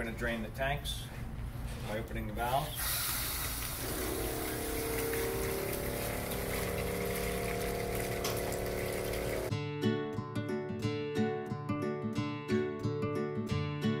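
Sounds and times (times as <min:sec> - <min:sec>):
pressure pump humming: 0:02.8 - 0:09.5
water running into plastic bucket: 0:02.9 - 0:09.5.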